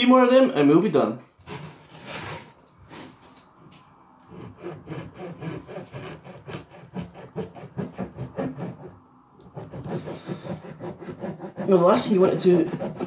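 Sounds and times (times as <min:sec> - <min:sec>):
knife sawing through bread crust: 0:04.3 - 0:13.0.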